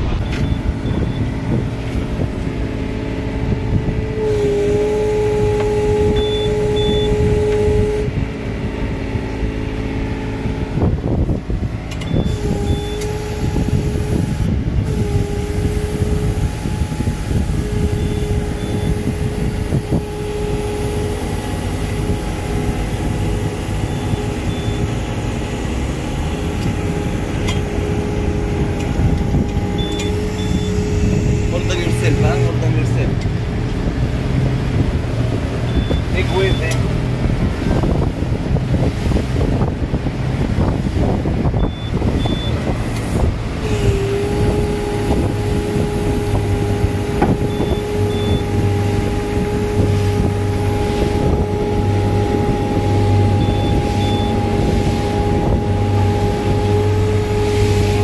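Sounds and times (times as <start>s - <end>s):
boat engine running: 0.0s - 58.0s
water noise: 0.0s - 58.0s
wind: 0.0s - 58.0s
steady mid-pitched whine: 29.2s - 33.1s, 35.8s - 36.8s.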